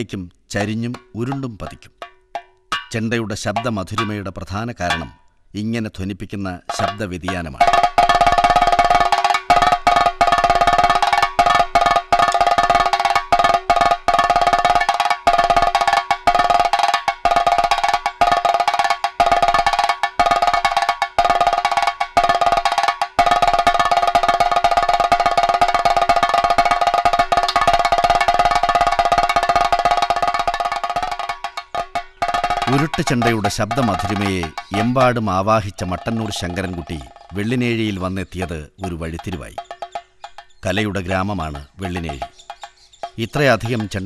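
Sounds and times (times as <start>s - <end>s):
drum roll with stick: 6.7s - 42.4s, 43.0s - 44.0s.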